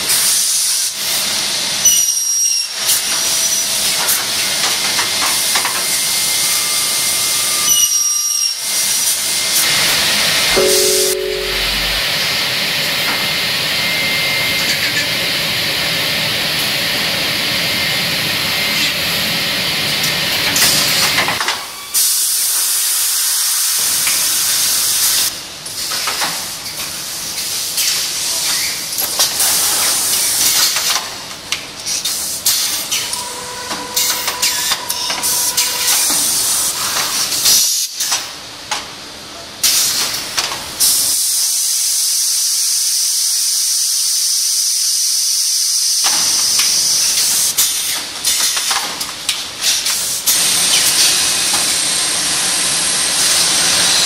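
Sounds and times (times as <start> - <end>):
low two-note tone: 10.6 - 12.0.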